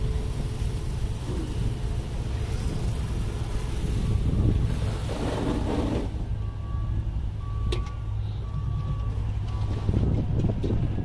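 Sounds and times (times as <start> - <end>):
machine engine running: 0.0 - 6.1
washing water hiss: 0.0 - 6.2.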